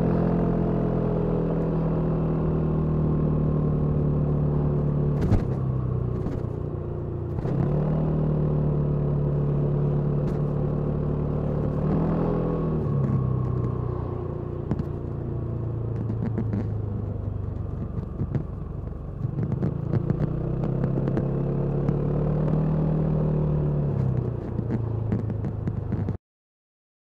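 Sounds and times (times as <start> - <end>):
scooter engine: 0.0 - 26.2.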